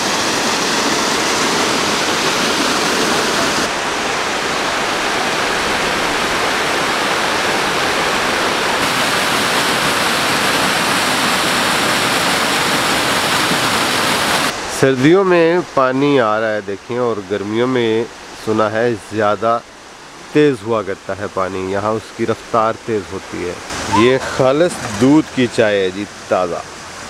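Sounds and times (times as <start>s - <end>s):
waterfall splashing onto rocks: 8.8s - 14.6s.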